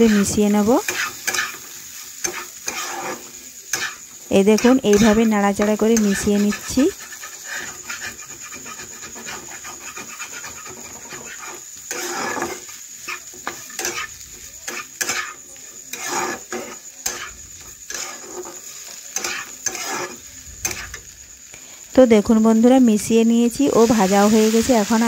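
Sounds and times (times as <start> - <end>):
spatula scraping frying vegetables: 0.0 - 25.0.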